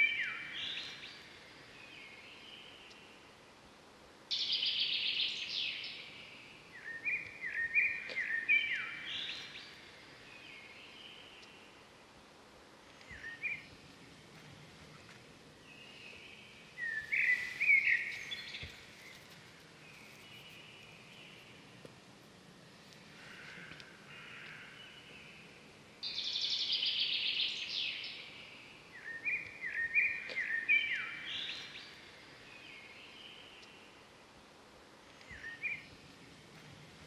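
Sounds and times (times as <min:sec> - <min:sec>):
birds chirping and trilling: 0:00.0 - 0:03.2, 0:04.3 - 0:11.8, 0:15.0 - 0:21.7, 0:23.2 - 0:34.0.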